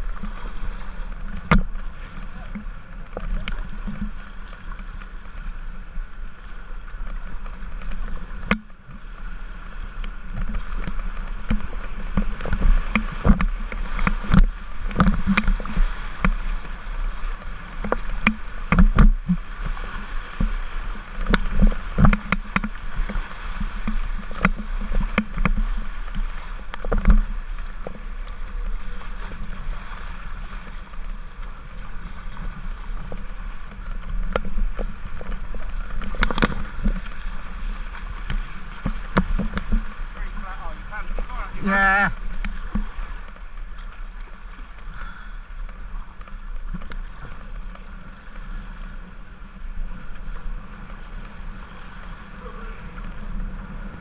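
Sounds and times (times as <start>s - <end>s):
paddle stroke splashes: 0.0s - 54.0s
river water rushing and splashing: 0.0s - 54.0s.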